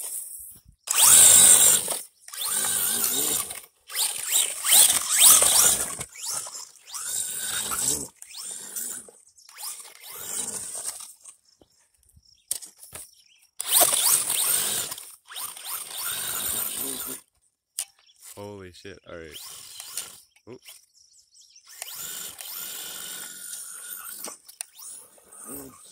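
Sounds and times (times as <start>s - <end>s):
electric motor whining: 0.9s - 11.3s, 13.6s - 17.2s, 19.3s - 20.8s, 21.6s - 25.9s.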